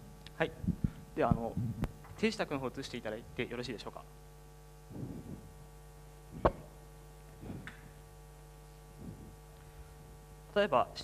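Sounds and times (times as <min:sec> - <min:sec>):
electrical hum: 0:00.0 - 0:11.0
faint low murmurs: 0:04.8 - 0:08.0, 0:08.7 - 0:10.0.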